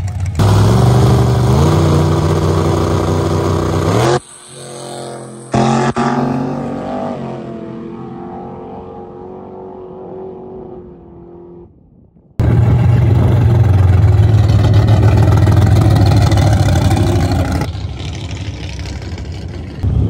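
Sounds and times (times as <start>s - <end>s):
drag car engine running slowly: 0.0s - 4.7s, 12.4s - 20.0s
drag car engines: 0.0s - 11.8s, 12.4s - 20.0s.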